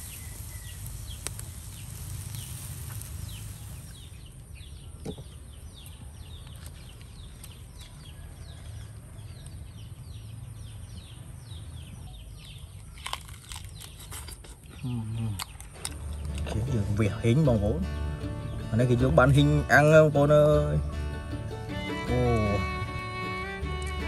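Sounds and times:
steady low rumble: 0.0s - 4.2s
birds chirping: 0.0s - 24.0s.

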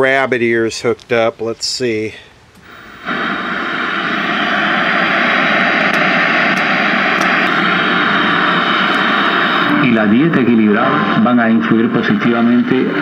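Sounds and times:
tv static hiss: 0.0s - 13.0s.

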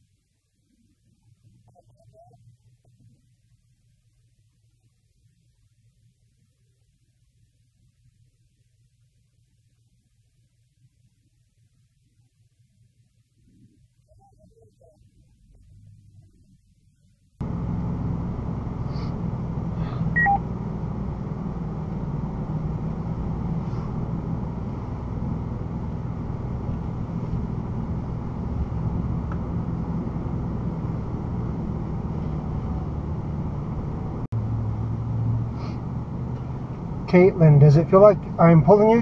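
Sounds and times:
road noise: 17.4s - 39.0s
vehicle engine running: 17.4s - 39.0s
short electronic beeps: 20.1s - 20.4s.

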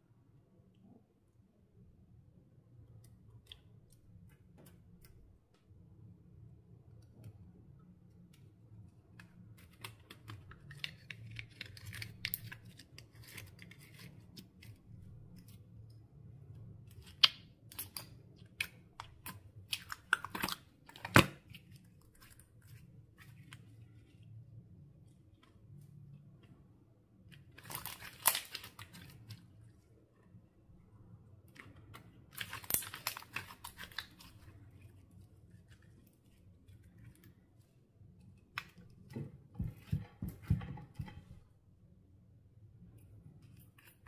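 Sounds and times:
slime crackling and popping: 27.5s - 29.2s, 32.3s - 34.4s.

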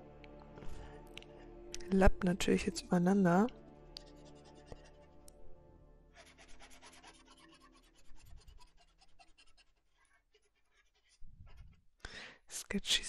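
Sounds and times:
marker scratching on paper: 4.0s - 5.2s, 6.2s - 11.7s.

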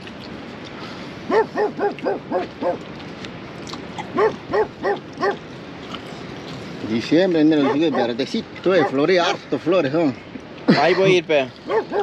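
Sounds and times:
dog barking: 1.3s - 2.8s, 4.1s - 5.4s, 7.6s - 9.0s, 11.7s - 12.0s.

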